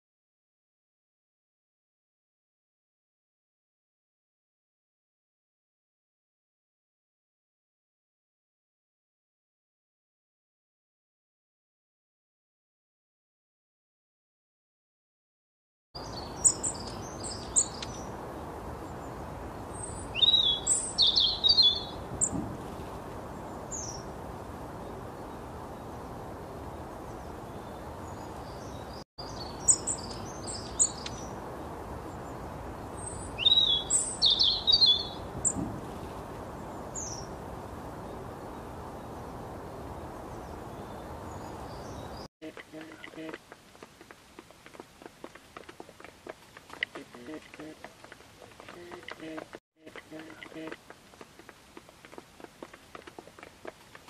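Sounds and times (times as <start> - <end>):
birds twittering rapidly: 16.0 - 43.3
small birds chirping: 16.0 - 54.0.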